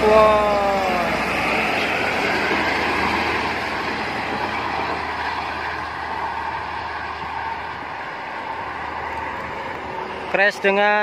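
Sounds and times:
bus and truck passing at speed: 0.0 - 11.0.

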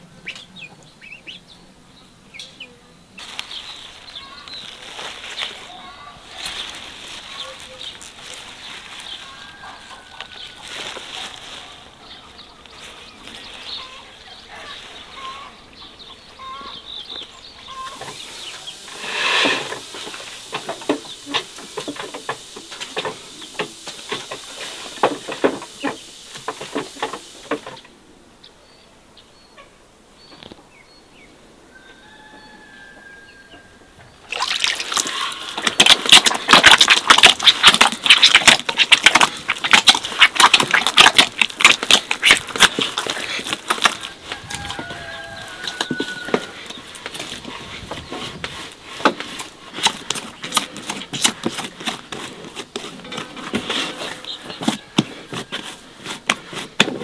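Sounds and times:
bird chirps: 0.0 - 9.6, 12.0 - 18.8
hands squelching wet dough: 34.3 - 57.0.

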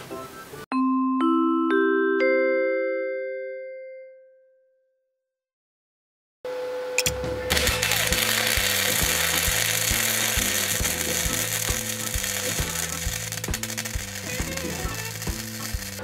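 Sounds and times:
background music with steady beat: 7.1 - 16.0
arc welding crackle and hiss: 7.5 - 16.0.

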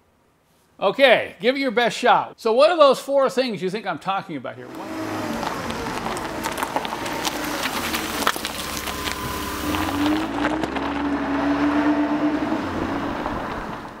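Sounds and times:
engine-like mechanical running: 4.7 - 11.2.

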